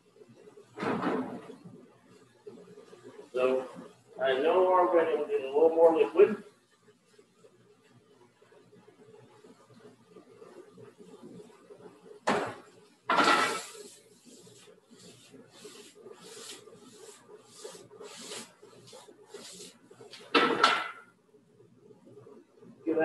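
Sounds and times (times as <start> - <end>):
steady hum: 0.0 - 23.0
pan stirring scrapes: 13.1 - 20.0.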